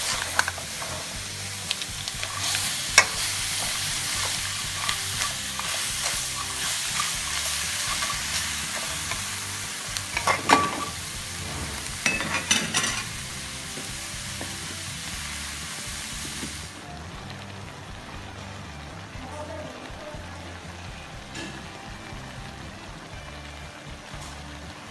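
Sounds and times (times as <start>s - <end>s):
metal spatula scraping wok: 0.0s - 14.0s
food sizzling in a wok: 0.0s - 24.9s.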